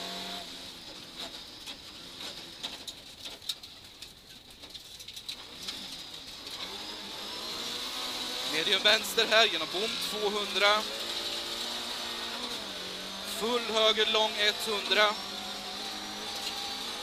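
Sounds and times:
faint car engine: 0.0 - 17.0
gravel striking car: 0.8 - 6.8.

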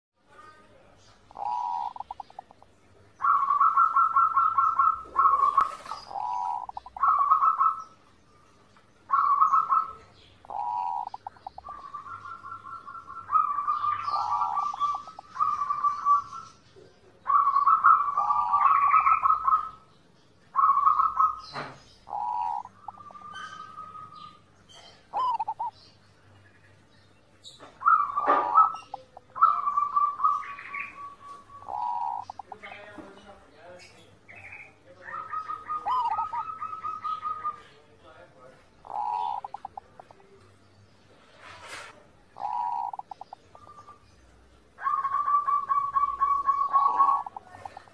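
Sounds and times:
dove cooing: 1.2 - 8.0, 9.1 - 16.6, 17.2 - 19.8, 20.5 - 25.9, 27.4 - 32.9, 34.4 - 37.8, 38.8 - 40.3, 42.2 - 44.1, 44.7 - 47.9.

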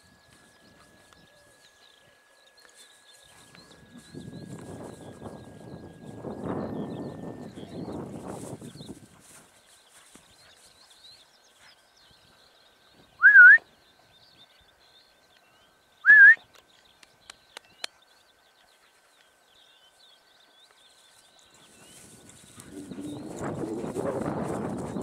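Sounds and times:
person whistling: 13.2 - 13.6, 16.1 - 16.4.

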